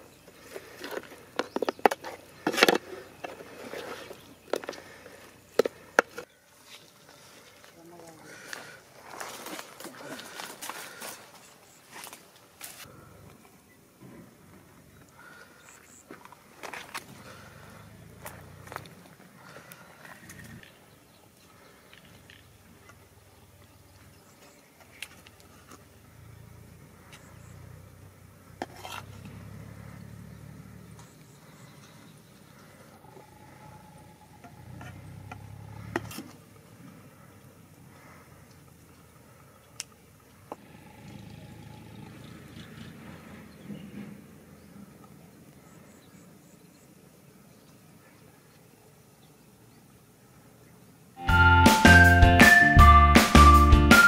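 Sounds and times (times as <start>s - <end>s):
metal spatula scraping metal pot: 28.6s - 29.1s.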